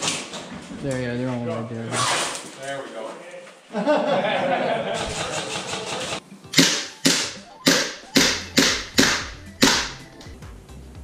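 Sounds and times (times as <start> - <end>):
sharp cracks: 6.6 - 10.3.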